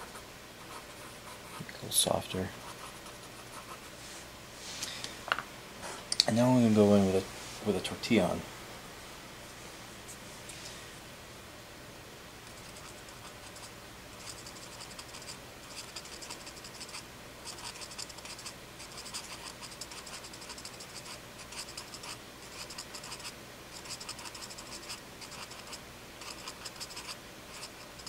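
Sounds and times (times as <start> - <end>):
paper tortillon scratching on paper: 0.0 - 1.7, 12.5 - 28.0.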